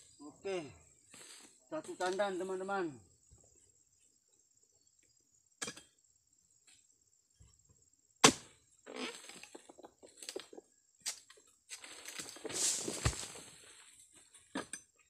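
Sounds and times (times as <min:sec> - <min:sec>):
frond crackling and rustling: 0:12.0 - 0:13.9.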